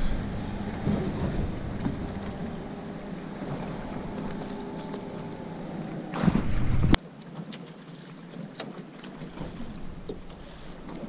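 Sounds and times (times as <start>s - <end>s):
faint steady hum: 0.0s - 6.9s
wind buffeting microphone: 0.0s - 7.0s.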